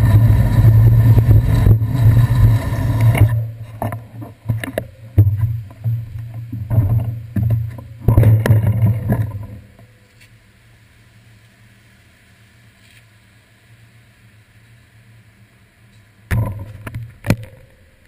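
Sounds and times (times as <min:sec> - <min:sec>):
wind and road rumble: 0:00.0 - 0:10.5.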